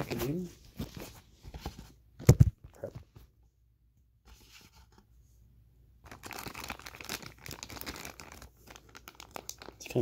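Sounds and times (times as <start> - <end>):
plastic bag crinkling: 6.0 - 10.0.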